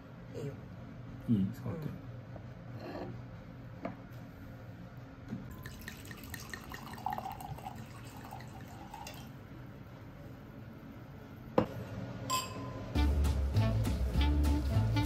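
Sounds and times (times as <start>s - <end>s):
wine glugging into a glass: 5.5s - 9.3s.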